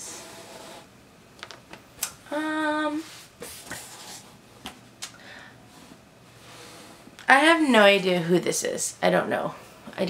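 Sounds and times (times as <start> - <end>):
woman humming: 2.3 - 3.0.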